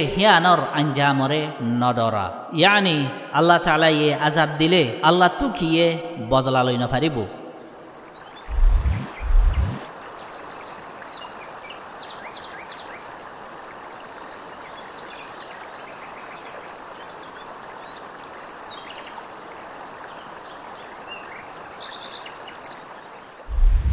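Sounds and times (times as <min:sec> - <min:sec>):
running water: 0:07.6 - 0:23.9
small birds chirping: 0:07.8 - 0:13.2.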